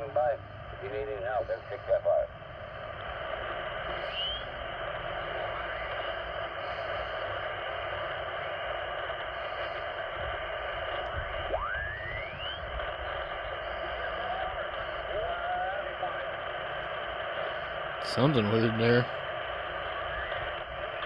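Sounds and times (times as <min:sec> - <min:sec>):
radio speaker hissing: 0:00.0 - 0:21.0.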